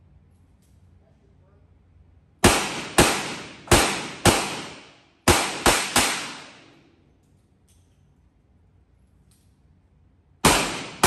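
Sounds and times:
revolver shots echoing: 2.4 - 6.7, 10.4 - 11.0.

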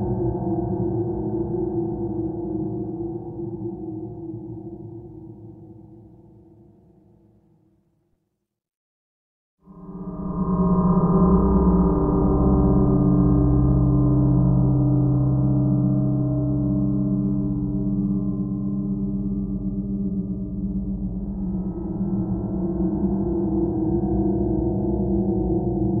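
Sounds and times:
ambient drone music: 9.7 - 26.0.

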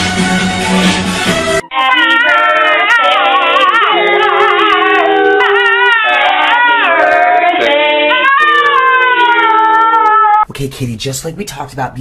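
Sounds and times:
people howling: 2.0 - 10.4
small dog howling: 2.2 - 10.4.

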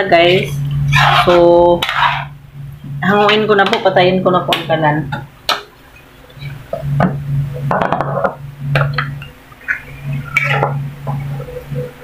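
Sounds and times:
low hum: 0.0 - 12.0
metal ladle scraping metal pan: 0.4 - 2.3.

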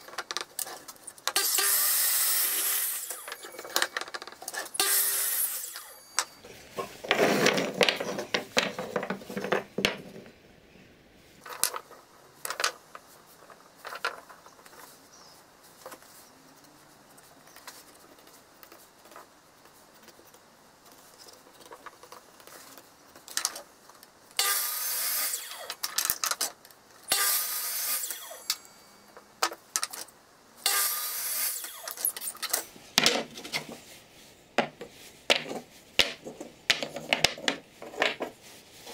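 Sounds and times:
mitre saw cutting wood: 1.4 - 3.8, 4.7 - 6.3, 24.4 - 25.8, 27.1 - 28.8, 30.6 - 32.1
wooden blocks knocking: 6.2 - 10.4, 34.6 - 38.4.

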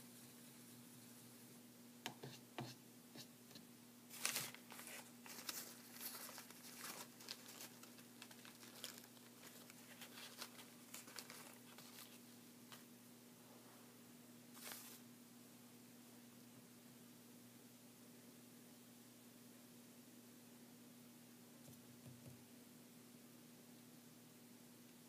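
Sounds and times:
painting supplies handled on table: 3.5 - 12.9
paper towel rustling: 4.1 - 12.8, 14.5 - 15.0.

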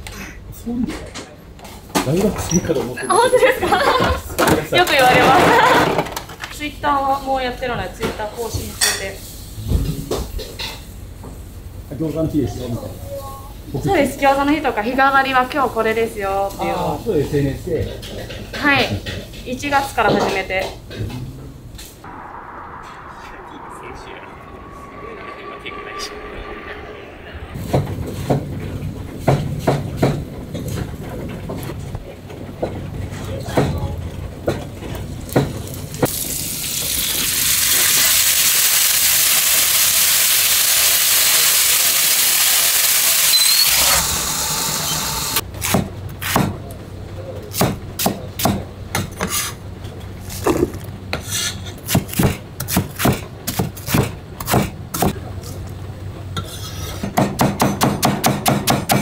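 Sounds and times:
griddle sizzling: 35.6 - 45.4.

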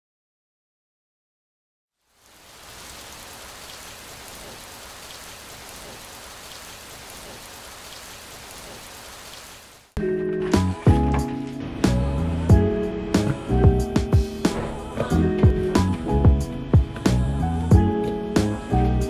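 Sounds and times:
rain on wet pavement: 2.0 - 10.0
music: 10.0 - 19.0.

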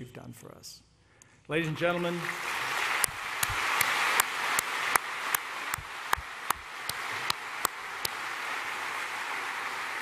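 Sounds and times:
audience applause: 1.7 - 10.0
man clapping near microphone: 2.2 - 10.0.

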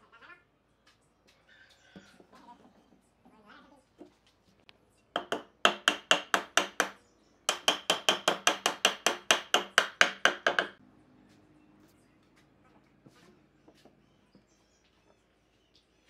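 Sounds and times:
hammer striking wood: 5.2 - 10.8.

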